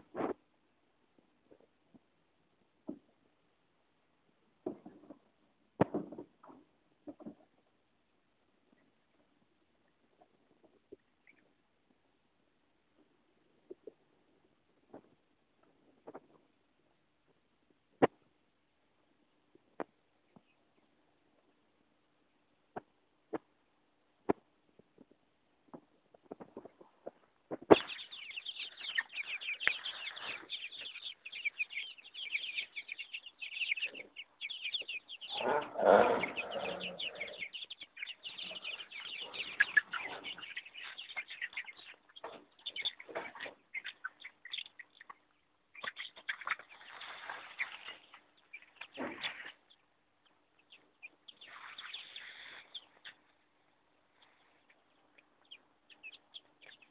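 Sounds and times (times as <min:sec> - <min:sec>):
chicks cheeping: 0:26.1 - 0:56.9.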